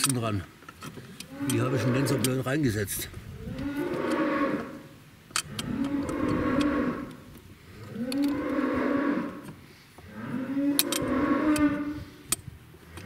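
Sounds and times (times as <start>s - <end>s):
cattle mooing: 1.3s - 2.4s, 3.4s - 9.5s, 10.1s - 12.1s.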